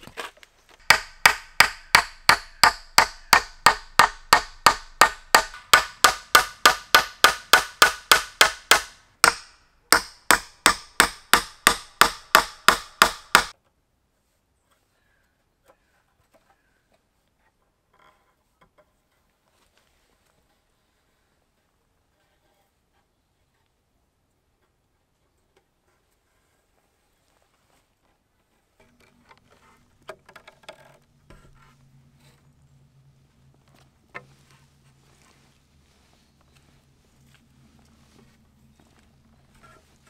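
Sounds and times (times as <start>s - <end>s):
hammer driving nails into wood: 0.8s - 13.5s.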